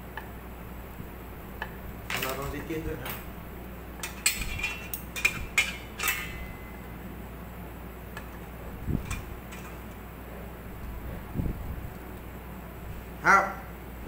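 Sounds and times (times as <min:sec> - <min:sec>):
metallic clinks on rack: 0:04.0 - 0:06.8.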